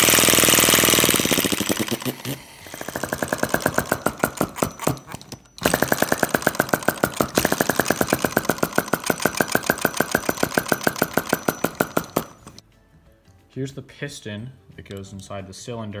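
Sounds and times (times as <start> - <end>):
small engine clattering fast: 0.0 - 12.6.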